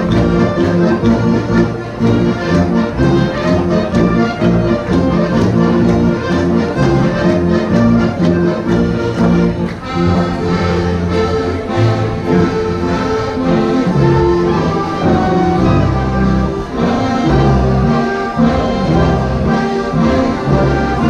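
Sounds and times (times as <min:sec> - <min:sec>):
folk dance music by live band: 0:00.0 - 0:21.0.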